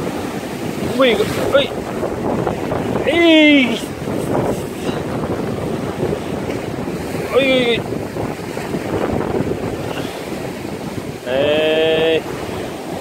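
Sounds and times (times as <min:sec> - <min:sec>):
surf washing over rocks: 0:00.0 - 0:13.0
wind buffeting microphone: 0:00.0 - 0:13.0.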